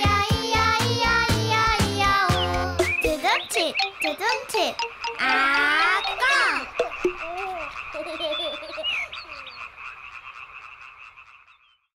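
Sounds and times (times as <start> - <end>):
frogs croaking: 2.8 - 11.9.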